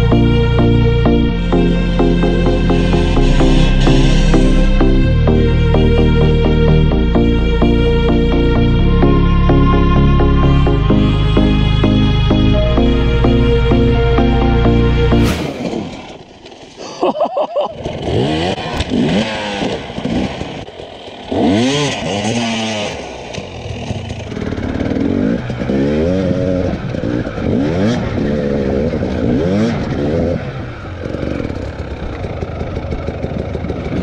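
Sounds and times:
dirt bike engine revving: 0.0 - 7.0, 17.7 - 34.0.

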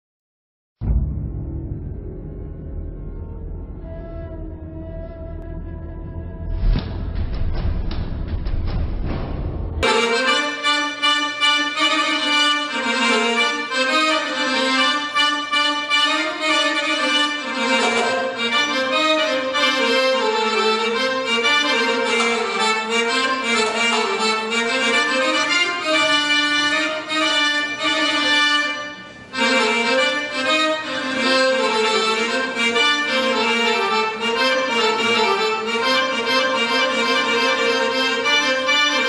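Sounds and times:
instrumental dance music: 9.8 - 28.3.

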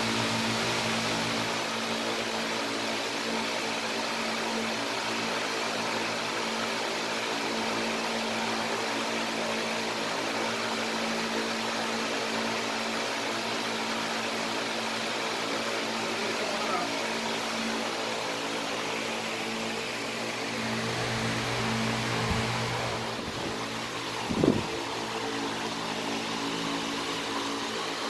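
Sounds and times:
fan humming with air hiss: 0.0 - 28.0.

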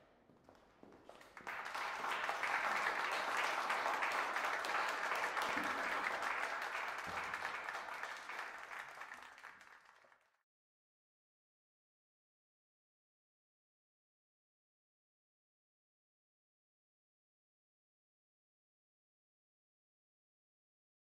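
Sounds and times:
audience applauding: 1.1 - 10.3.

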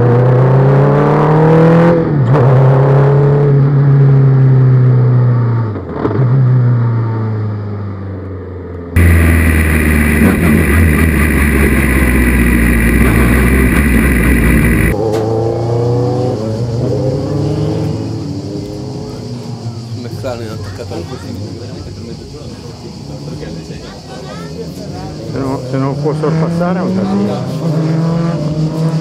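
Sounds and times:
dense engine note with rushing: 9.0 - 15.0
race car engine revs falling: 9.0 - 15.0
race car engines revving: 9.0 - 19.8, 25.3 - 29.0.

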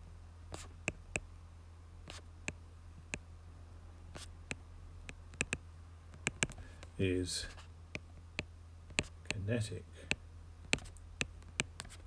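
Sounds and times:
low steady hum: 0.0 - 12.0
stylus clicking on glass screen: 5.1 - 6.6, 10.1 - 12.0.

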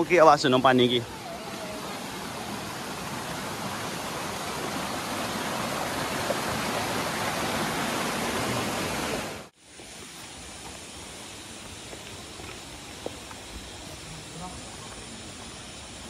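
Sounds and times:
water rushing over rocks: 0.0 - 9.5.

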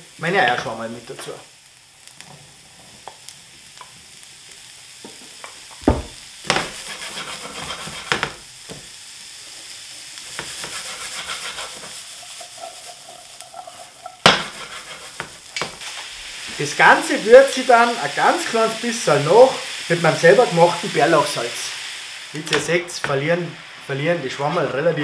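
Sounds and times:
mushrooms sizzling in a frying pan: 0.0 - 25.0
pan knocking while stirred: 10.4 - 15.8.

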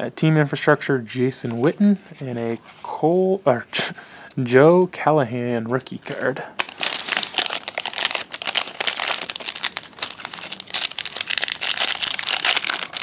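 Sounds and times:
foil wrapper crinkling: 6.6 - 13.0.

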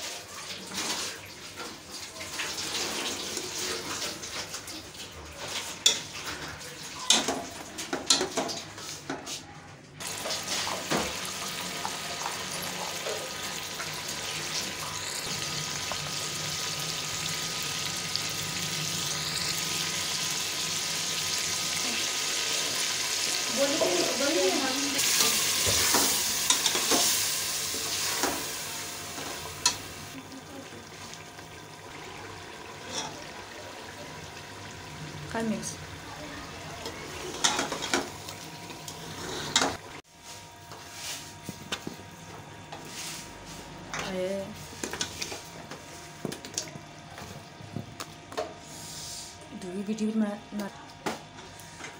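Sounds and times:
meat frying and sizzling in a pot: 0.0 - 9.2, 10.0 - 42.0.

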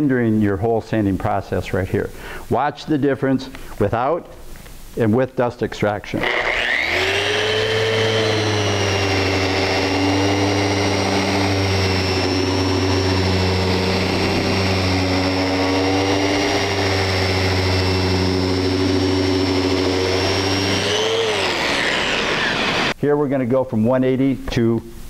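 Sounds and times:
orbital sander whine: 6.2 - 23.0.

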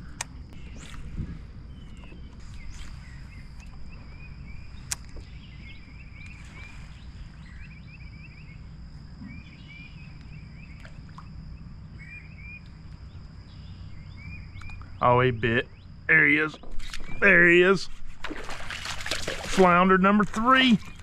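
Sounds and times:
small birds chirping: 0.0 - 17.9
faint high whine: 0.0 - 21.0
wind on microphone: 0.6 - 3.4.

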